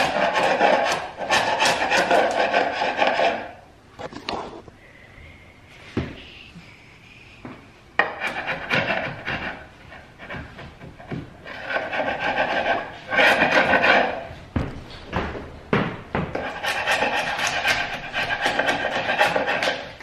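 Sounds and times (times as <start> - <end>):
chisel scraping paint off wood: 0.0 - 3.6, 8.0 - 14.3, 16.4 - 20.0.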